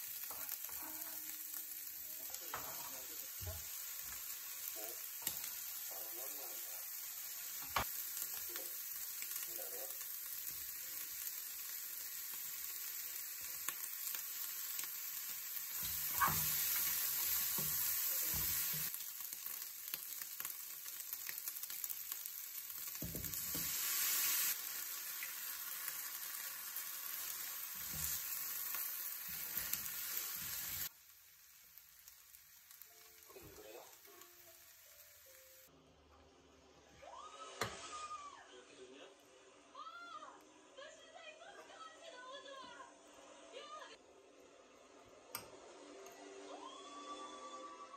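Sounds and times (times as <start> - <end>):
rice sizzling in a frying pan: 0.0 - 35.7.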